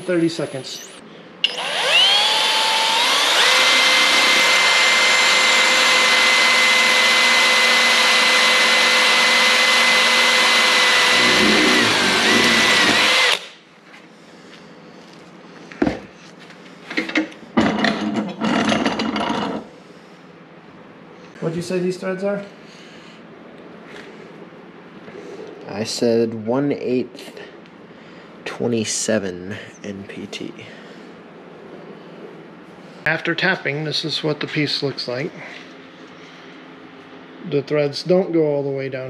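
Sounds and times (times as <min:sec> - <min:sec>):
cordless drill whining: 0:00.5 - 0:13.6
knocks and rattles of metal piece: 0:16.9 - 0:19.6.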